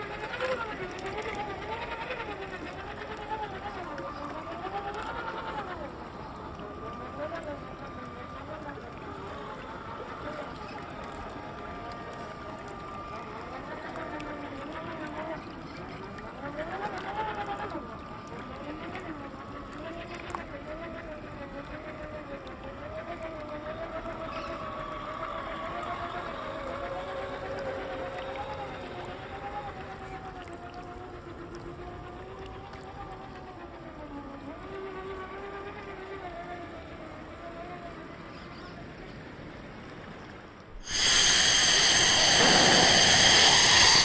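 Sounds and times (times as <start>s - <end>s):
electric motors whining: 40.8s - 44.0s
loud static hiss: 40.8s - 44.0s
water rushing: 40.8s - 44.0s.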